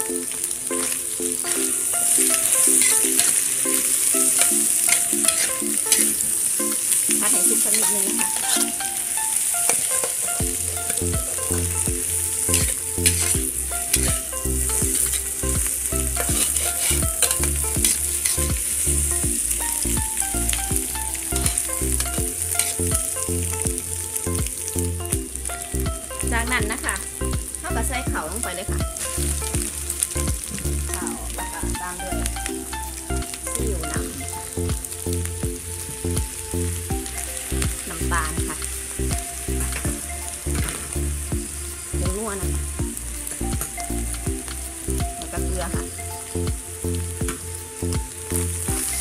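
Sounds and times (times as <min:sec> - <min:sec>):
background music with beat: 0:00.0 - 0:49.0
food sizzling in oil: 0:00.0 - 0:49.0
spatula scraping a wok: 0:00.7 - 0:24.4.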